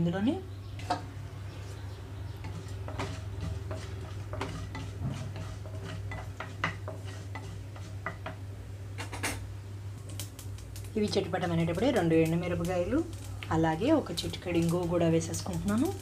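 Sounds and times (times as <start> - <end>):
wooden spatula stirring in a pan: 0.8 - 8.4
seeds popping in hot oil: 2.3 - 8.4, 9.0 - 16.0.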